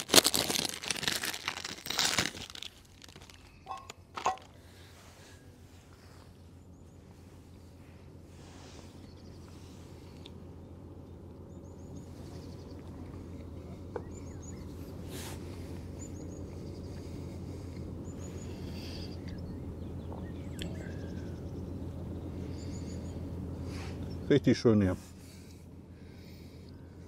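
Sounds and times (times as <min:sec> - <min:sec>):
steady low rumble: 0:00.0 - 0:27.0
small birds chirping: 0:05.7 - 0:27.0.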